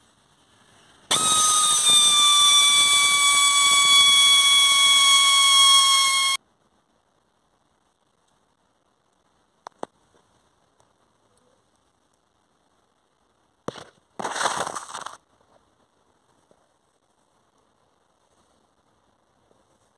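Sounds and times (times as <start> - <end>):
electric drill whining: 1.1 - 6.4.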